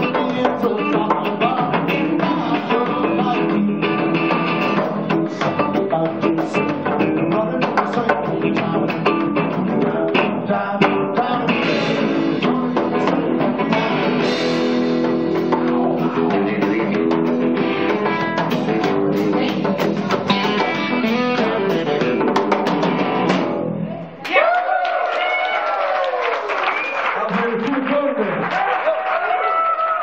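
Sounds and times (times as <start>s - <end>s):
drum kit hits: 0.0s - 23.7s
bass guitar: 0.0s - 24.2s
electric guitar: 0.0s - 24.2s.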